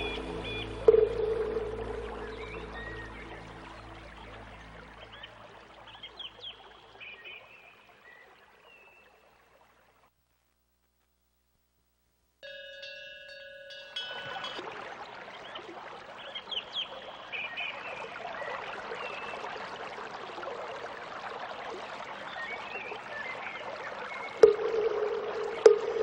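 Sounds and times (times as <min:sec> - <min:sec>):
high chirps: 0:00.0 - 0:03.4, 0:24.4 - 0:26.0
running stream: 0:00.0 - 0:10.2, 0:12.4 - 0:26.0
bell-like chime: 0:12.4 - 0:14.6.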